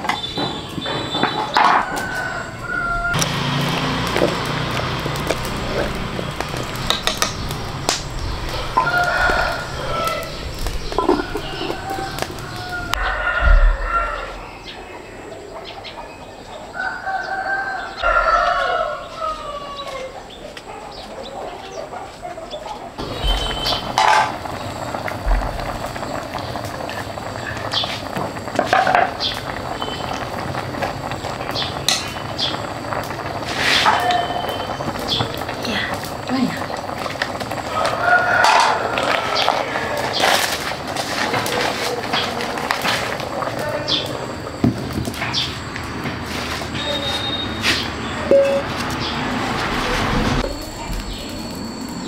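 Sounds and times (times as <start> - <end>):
rooster crowing: 1.4 - 14.8, 16.7 - 20.3, 37.5 - 40.6
hens clucking: 5.1 - 13.4.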